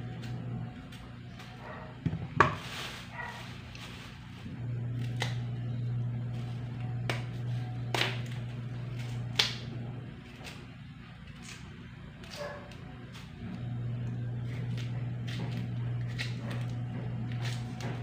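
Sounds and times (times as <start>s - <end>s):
steady low hum: 0.0s - 18.0s
plastic bag rustling: 0.8s - 4.6s
knife cutting through tough peel: 2.6s - 5.6s, 6.4s - 13.4s, 14.2s - 18.0s.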